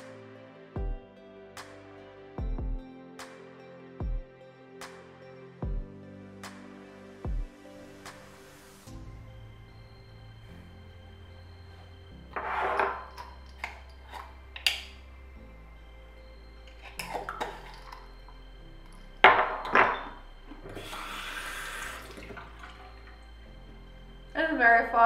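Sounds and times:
faint background music: 0.0s - 25.0s.

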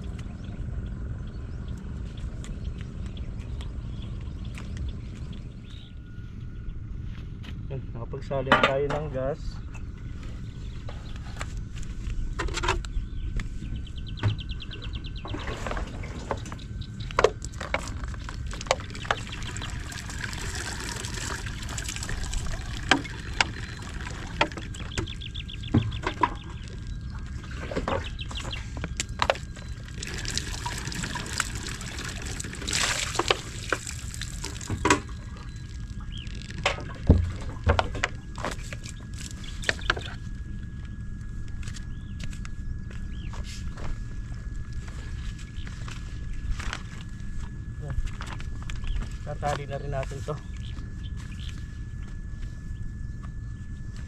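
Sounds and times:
liquid pouring and trickling: 17.6s - 25.3s, 29.1s - 38.2s.

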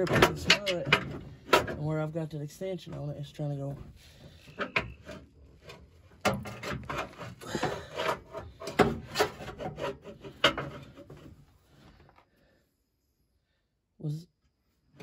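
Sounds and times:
metal scraping: 4.2s - 11.3s.

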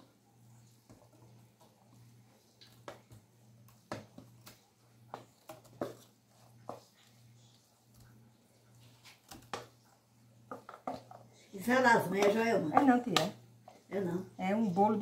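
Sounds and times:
wooden spoon knocking on pot: 10.4s - 11.2s, 12.0s - 13.8s.

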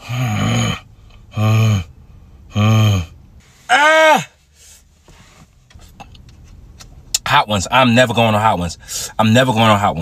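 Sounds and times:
man groaning in pain: 0.0s - 1.9s, 2.5s - 3.1s, 3.7s - 4.3s.

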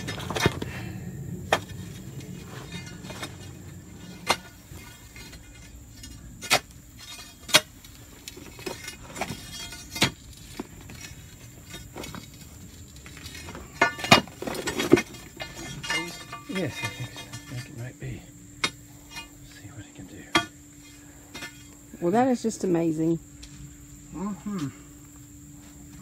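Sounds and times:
rock grinding: 0.0s - 17.9s.

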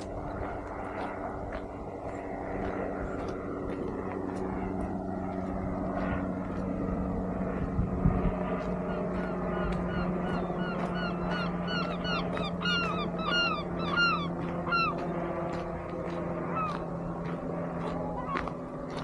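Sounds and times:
low engine hum: 0.0s - 19.0s
bird calling: 8.9s - 15.0s.

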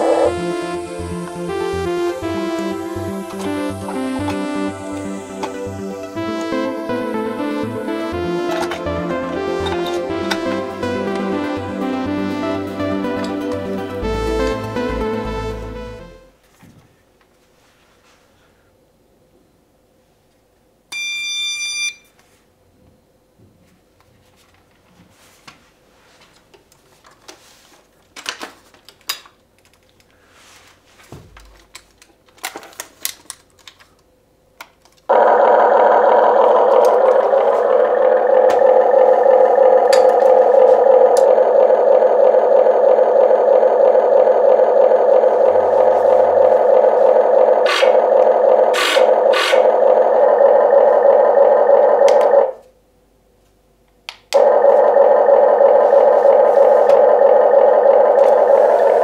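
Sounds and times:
clicks of model being handled: 31.4s - 35.1s
simulated diesel engine from speaker: 35.1s - 52.6s, 54.4s - 59.0s.

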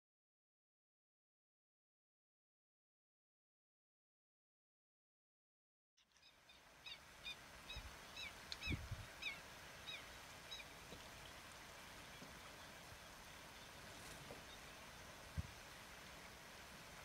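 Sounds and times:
outdoor hiss: 6.0s - 17.0s.

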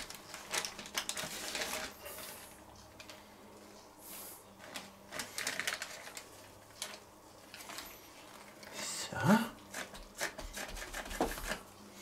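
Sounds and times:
baking paper crinkling: 0.0s - 3.2s, 4.5s - 8.8s
person speaking: 8.7s - 9.6s.

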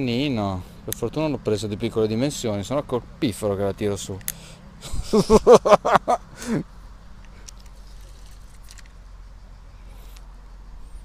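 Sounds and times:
faint ticks: 9.8s - 10.4s.

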